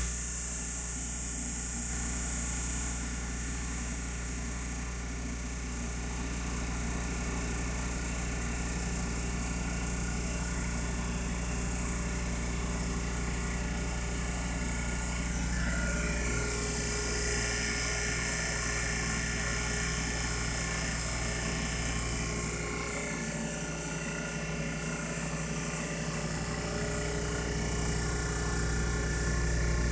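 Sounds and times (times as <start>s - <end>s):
vacuum pump motor hum: 0.0s - 29.9s.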